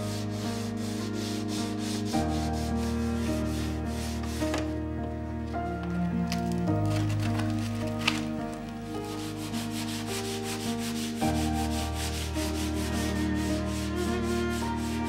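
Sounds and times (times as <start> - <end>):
sandpaper rasping on wood: 0.0 - 4.7, 9.1 - 15.0
soft background music: 0.0 - 15.0.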